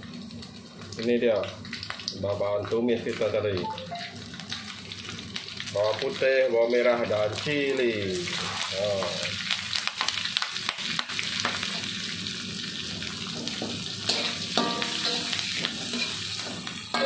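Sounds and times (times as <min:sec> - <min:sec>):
food sizzling in hot oil: 0:00.0 - 0:17.0
metal spatula scraping a pan: 0:14.1 - 0:17.0.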